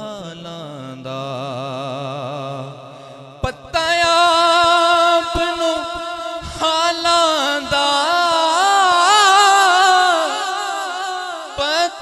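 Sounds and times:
man singing through a microphone: 0.0s - 12.0s.

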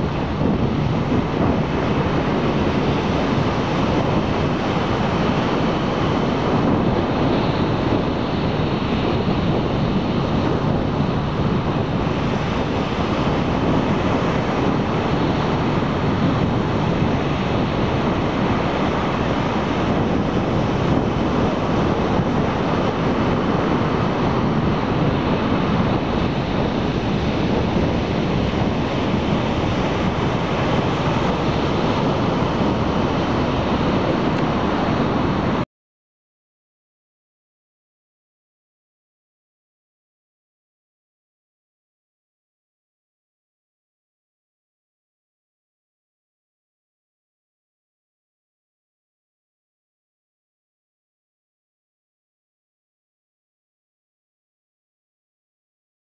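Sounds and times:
ocean waves breaking: 0.0s - 35.6s
wind noise on microphone: 0.0s - 35.7s.

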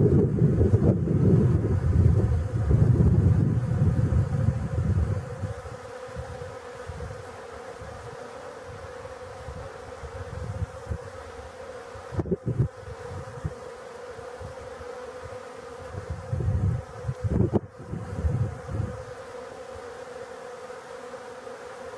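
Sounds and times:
wind rumble on microphone: 0.0s - 7.2s, 7.8s - 11.2s, 12.0s - 13.6s, 15.8s - 19.1s
bees buzzing: 0.0s - 21.9s.

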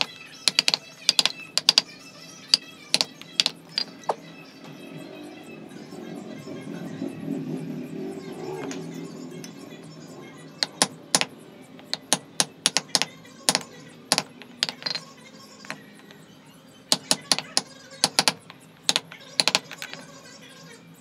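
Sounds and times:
wooden mallet knocking on chisel: 0.0s - 1.9s, 2.9s - 4.2s, 10.6s - 15.1s, 16.9s - 20.0s.

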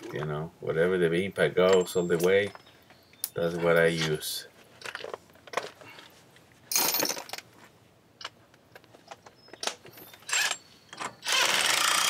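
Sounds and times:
tools clinking: 1.6s - 4.1s.

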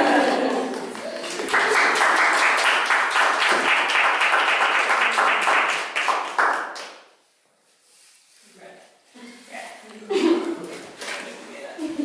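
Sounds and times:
audience applauding: 0.5s - 7.0s.

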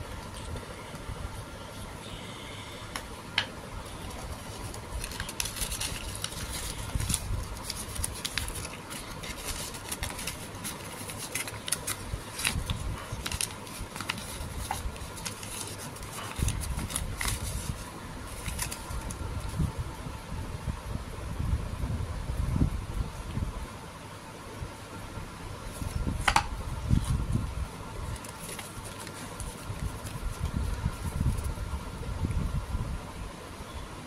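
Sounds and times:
paper crinkling and rustling: 4.1s - 19.7s, 25.6s - 27.3s, 28.0s - 31.6s.

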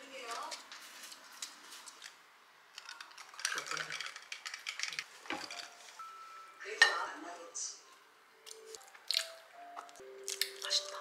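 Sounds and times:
ice cubes clinking in a glass: 2.8s - 5.7s
tableware knocking on table: 6.8s - 7.1s.

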